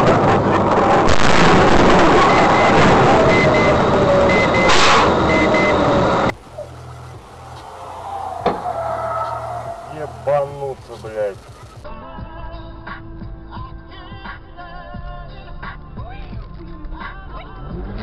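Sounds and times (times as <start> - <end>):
road and vehicle noise: 0.0 - 11.9
short double beep: 2.2 - 6.0.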